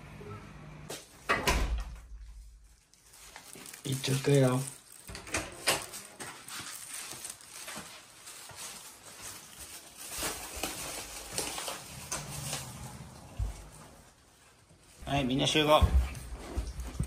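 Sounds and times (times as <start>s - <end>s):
knocks and shuffles: 5.9s - 17.0s
footsteps on wooden floor: 11.2s - 14.2s, 15.4s - 17.0s.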